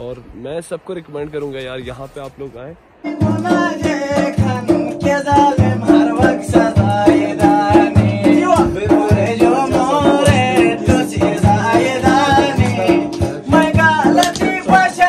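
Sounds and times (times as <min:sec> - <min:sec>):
man singing: 0:03.0 - 0:15.0
quick percussion beat: 0:03.0 - 0:15.0.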